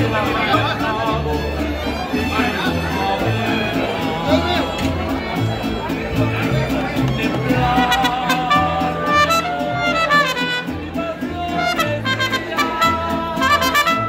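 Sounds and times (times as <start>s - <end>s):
low bass line: 0.0s - 14.0s
strummed guitars: 0.0s - 14.0s
trumpet melody: 7.8s - 14.0s.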